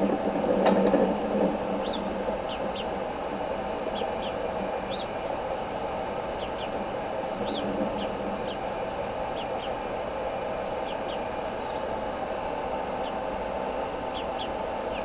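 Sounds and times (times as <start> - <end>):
steady rushing noise: 0.0 - 15.0
eagle chicks peeping: 1.8 - 5.2, 6.2 - 9.9, 10.7 - 12.0, 12.9 - 13.3, 14.0 - 15.0.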